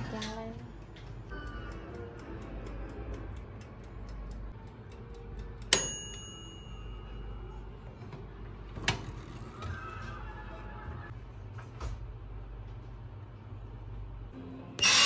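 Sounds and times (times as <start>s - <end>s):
oven timer ticking: 0.0s - 7.4s
timer bell ding: 5.7s - 7.4s.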